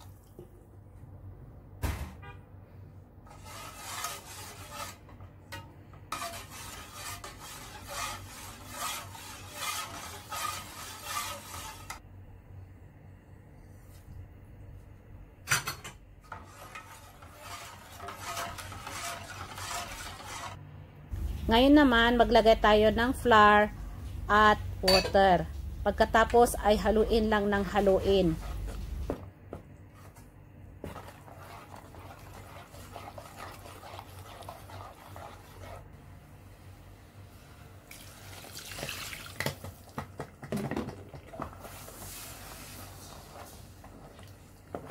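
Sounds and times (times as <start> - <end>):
spoon swishing and scraping batter: 3.2 - 5.1, 6.1 - 12.0, 16.3 - 20.6, 27.6 - 29.1, 29.9 - 36.0, 41.3 - 44.9
metal ladle stirring in pot: 3.3 - 12.0, 16.3 - 20.6, 30.8 - 36.0
low steady hum: 11.8 - 38.1.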